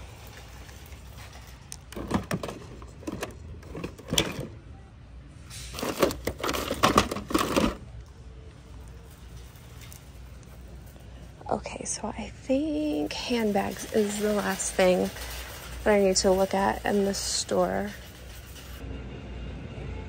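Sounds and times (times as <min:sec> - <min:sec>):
crinkling rustle: 0:00.0 - 0:04.2, 0:05.6 - 0:11.5.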